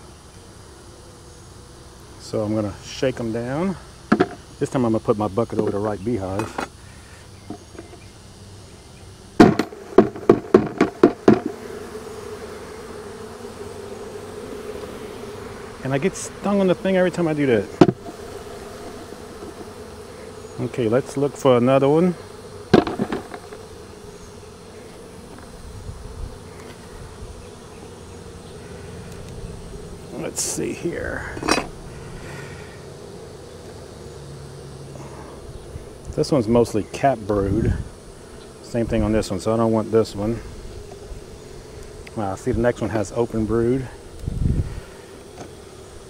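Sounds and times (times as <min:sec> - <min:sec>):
bees buzzing: 0:00.0 - 0:46.0
hive frame knocking on bucket: 0:04.0 - 0:04.5, 0:05.5 - 0:06.8, 0:07.4 - 0:08.1, 0:09.4 - 0:24.0, 0:24.8 - 0:25.6, 0:45.3 - 0:45.7.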